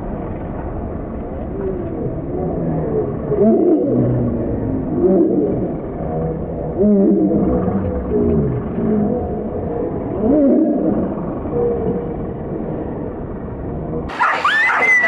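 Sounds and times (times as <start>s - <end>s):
muffled wavering cries: 1.6s - 15.0s
dogs yelping and whining: 14.1s - 15.0s.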